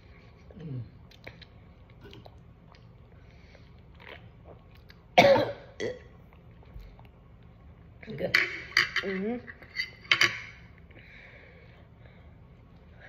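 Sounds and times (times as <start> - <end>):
person coughing: 5.2 - 6.0.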